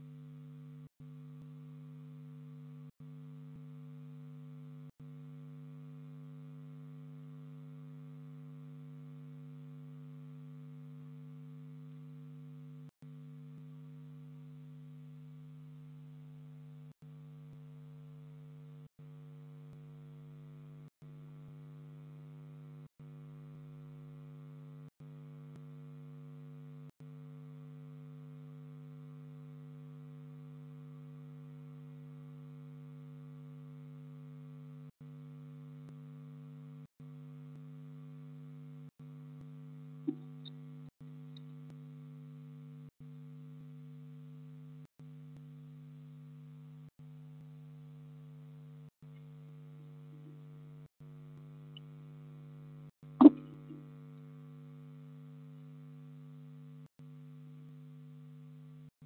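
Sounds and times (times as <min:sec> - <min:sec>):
electrical hum: 0:40.0 - 0:40.9, 0:53.2 - 0:53.9.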